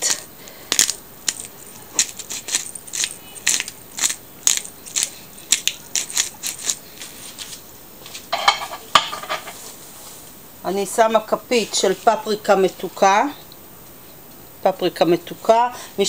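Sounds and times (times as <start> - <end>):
pepper grinder crunchy clicks: 0.7 - 6.8.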